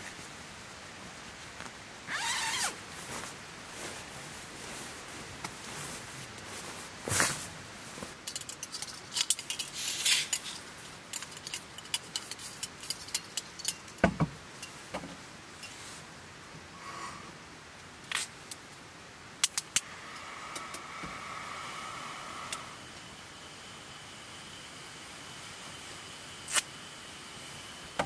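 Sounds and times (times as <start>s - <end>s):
objects clicking and clinking: 8.2s - 14.8s.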